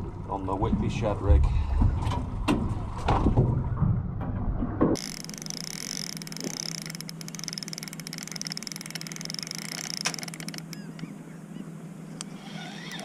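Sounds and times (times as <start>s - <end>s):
fishing reel ticking: 5.0s - 11.1s, 12.2s - 13.0s.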